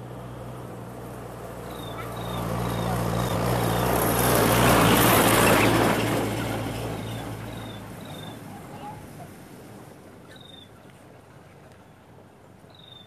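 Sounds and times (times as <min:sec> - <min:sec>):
vehicle passing by: 0:00.0 - 0:10.4.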